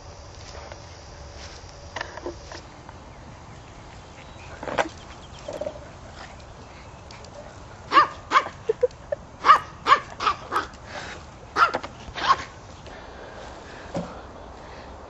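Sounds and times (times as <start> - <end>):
dog barking: 7.9 - 8.6, 9.4 - 10.7, 11.6 - 12.5.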